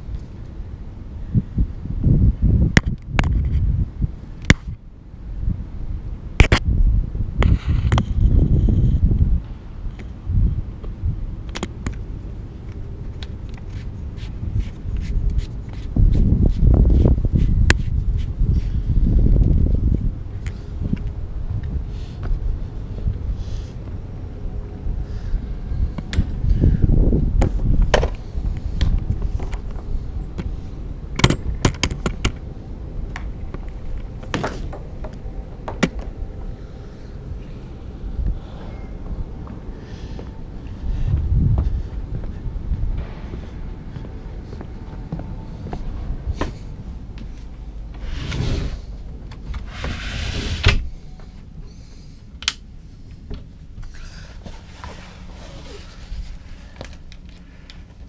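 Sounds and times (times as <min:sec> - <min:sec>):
low rumble: 0:12.0 - 0:51.6
sliding door rubbing along track: 0:47.8 - 0:50.9.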